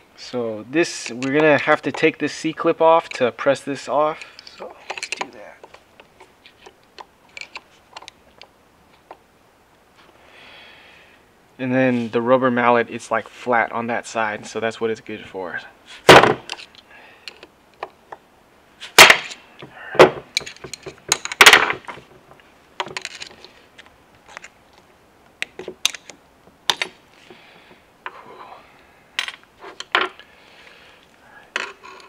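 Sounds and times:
light metal clicks and clinks: 4.1s - 8.5s
tools set down on bench: 29.2s - 30.2s.

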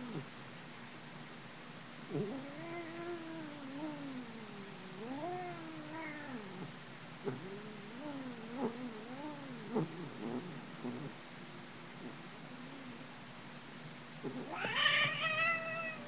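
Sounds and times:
cat meowing: 14.4s - 16.0s.

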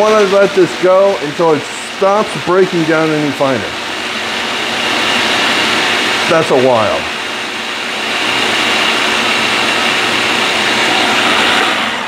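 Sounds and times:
food processor motor running: 0.0s - 12.0s.

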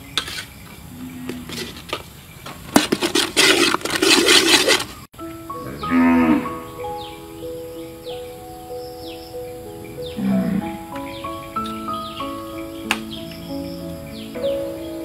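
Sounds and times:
metal spatula scraping wok: 0.2s - 0.6s, 2.7s - 5.1s
background music: 5.2s - 15.0s.

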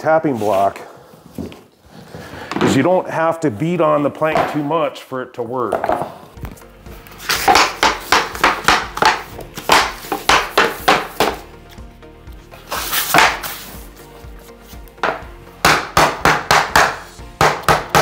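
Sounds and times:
tapping block knocking on plank: 15.0s - 18.0s.

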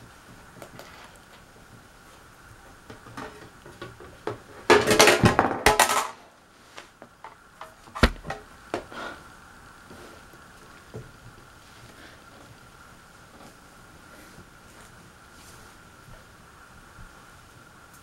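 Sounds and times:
sharp knocks: 8.0s - 8.4s.

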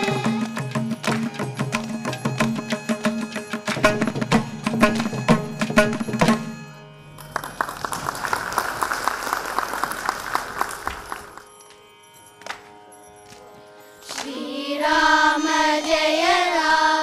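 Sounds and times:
held accompanying notes: 0.0s - 8.0s
audience applause: 7.2s - 11.4s.

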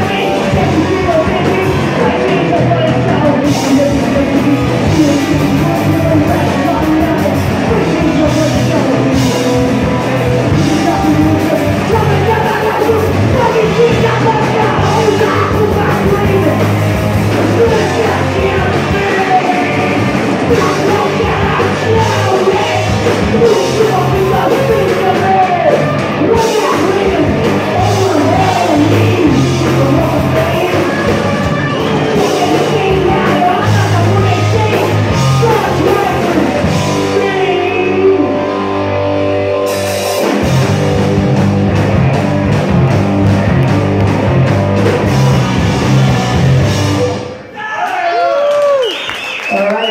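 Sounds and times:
singer's vocals: 0.0s - 38.6s, 45.0s - 49.9s
punk rock band playing: 0.0s - 47.6s.

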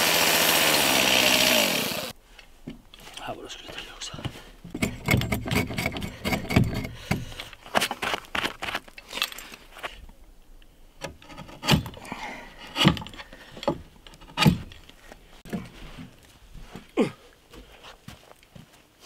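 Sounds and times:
axe cutting and scraping wood: 4.7s - 9.3s, 11.0s - 15.7s.

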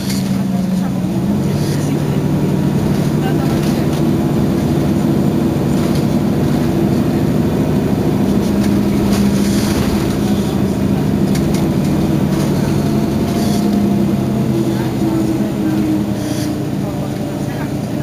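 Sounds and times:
bus diesel engine idling: 0.0s - 18.0s.

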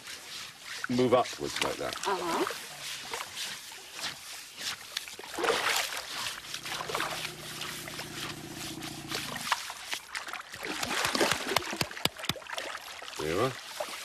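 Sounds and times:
water splashing and trickling: 0.0s - 14.0s
low steady hum: 6.1s - 9.5s.

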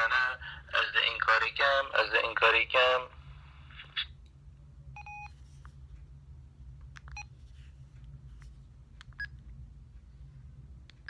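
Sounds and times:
low steady hum: 0.0s - 11.0s
mobile phone beeps: 5.0s - 5.4s.

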